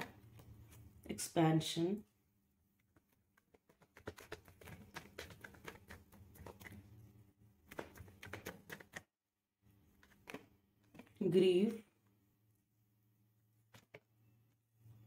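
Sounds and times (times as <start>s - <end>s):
cards being shuffled: 9.9s - 11.2s.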